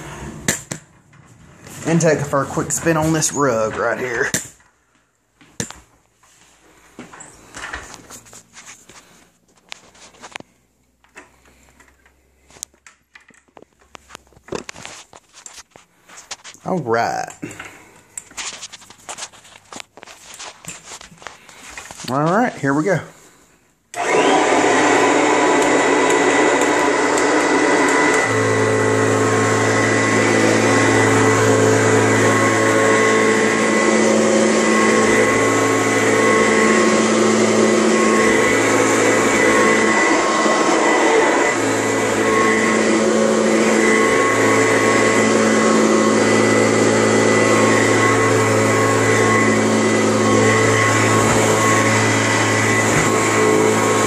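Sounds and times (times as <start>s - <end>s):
vacuum cleaner running: 0.0s - 4.4s, 23.9s - 54.0s.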